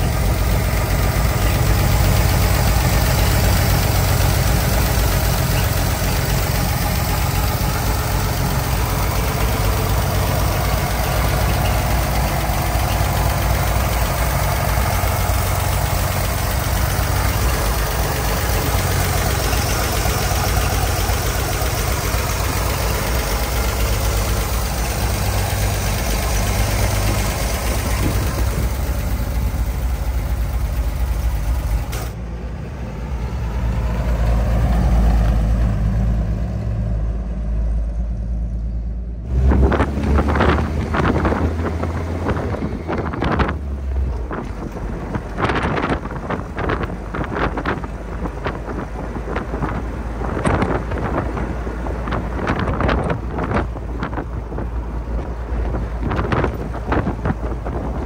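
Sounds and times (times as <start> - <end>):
engine idling: 0.0 - 33.2
engine running while driving: 0.0 - 58.0
wind buffeting microphone: 39.4 - 58.0.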